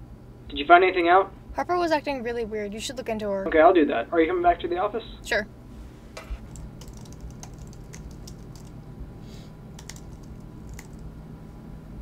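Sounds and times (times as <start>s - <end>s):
keyboard typing: 6.2s - 8.8s, 9.8s - 11.0s.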